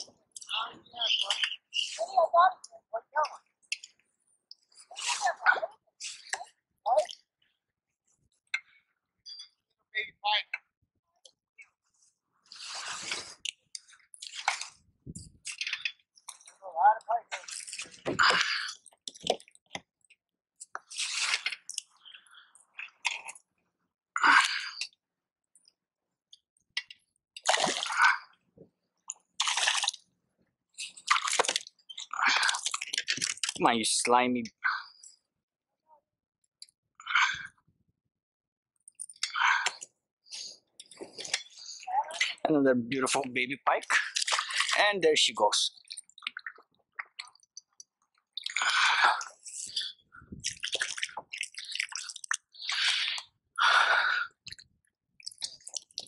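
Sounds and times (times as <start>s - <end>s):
fish splashing at surface: 29.4s - 30.0s, 30.9s - 33.6s.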